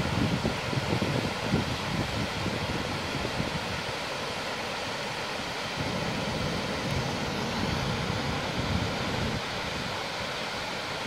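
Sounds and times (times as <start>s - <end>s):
wind rumbling on microphone: 0.0s - 4.2s, 5.6s - 10.2s
fast-flowing stream rushing: 0.0s - 11.0s.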